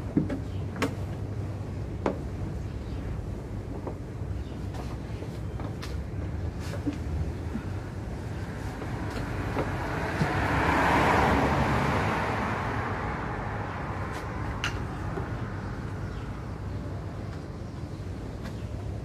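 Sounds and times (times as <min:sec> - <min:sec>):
traffic rumble: 0:00.0 - 0:19.0
vehicle passing: 0:08.2 - 0:16.3.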